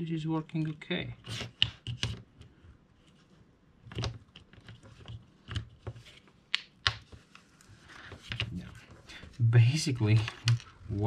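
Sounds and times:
plastic parts clicking and knocking: 3.8 - 7.2.

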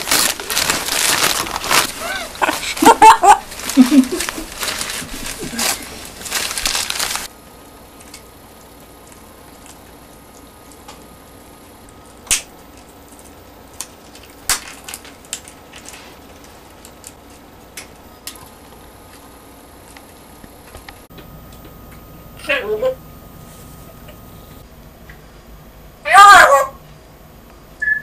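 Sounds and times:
parrot chewing and tearing: 0.0 - 7.3, 7.9 - 10.9.

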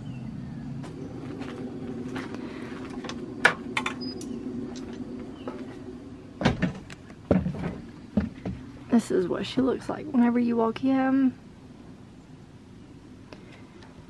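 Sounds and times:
steady low hum: 0.0 - 14.0
footsteps on steps and floor: 6.6 - 8.7.

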